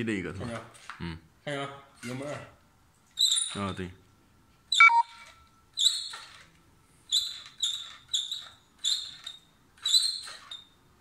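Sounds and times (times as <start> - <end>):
pedal sensor squeaking: 3.2 - 3.8, 4.7 - 6.5, 7.1 - 10.8.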